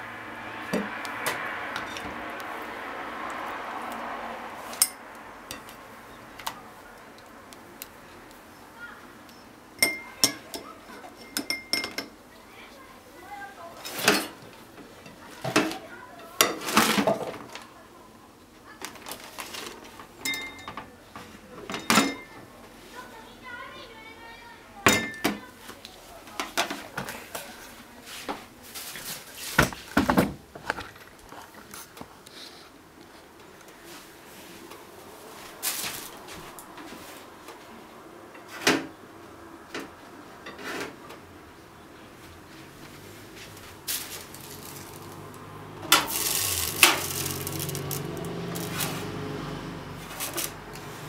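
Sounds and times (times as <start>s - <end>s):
kitchen clicks and knocks: 9.8s - 12.2s, 13.8s - 15.8s, 16.4s - 17.5s, 18.8s - 22.4s, 24.9s - 25.5s
kitchenware clinking on plate: 9.8s - 12.2s, 20.2s - 20.9s, 21.7s - 22.4s, 24.9s - 25.5s.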